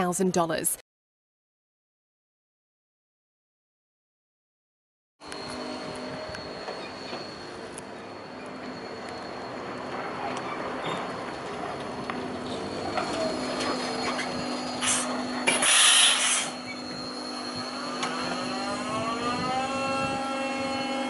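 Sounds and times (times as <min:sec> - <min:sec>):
truck electric whine: 0:05.2 - 0:21.0
air hiss: 0:14.8 - 0:16.6.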